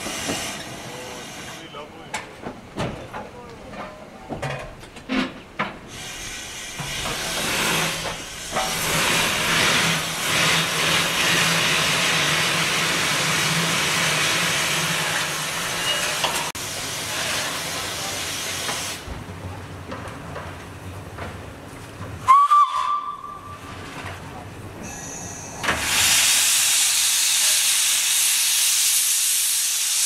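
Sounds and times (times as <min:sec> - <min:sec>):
steam hissing from safety valves: 0:00.0 - 0:01.8, 0:05.9 - 0:19.0, 0:24.8 - 0:30.0.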